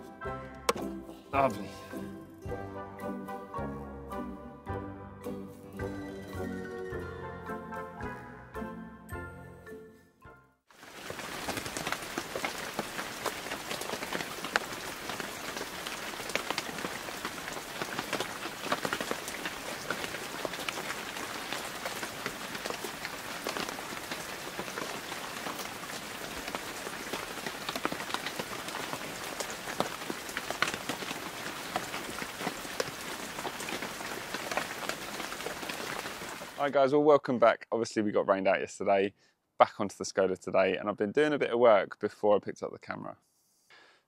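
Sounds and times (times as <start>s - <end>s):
rain drops ticking: 10.7s - 36.7s.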